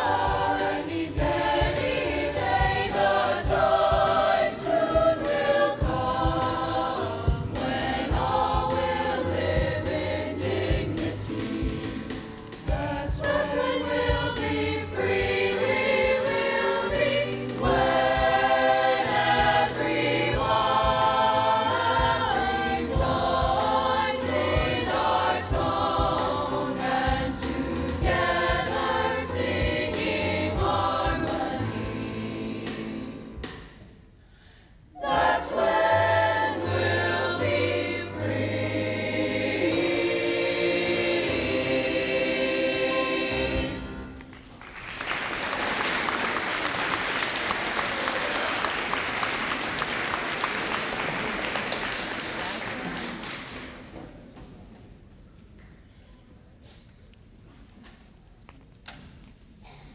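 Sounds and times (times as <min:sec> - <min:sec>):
children's choir singing: 0:00.0 - 0:33.8, 0:34.9 - 0:44.4
piano accompaniment: 0:00.0 - 0:33.8, 0:34.9 - 0:45.2.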